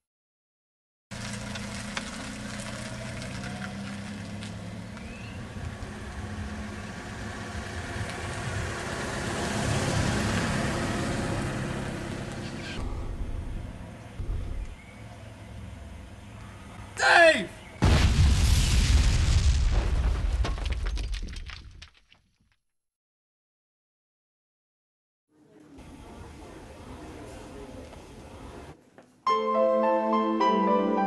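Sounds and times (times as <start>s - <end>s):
car engine running: 1.1s - 16.8s
tyre and road noise: 1.1s - 18.4s.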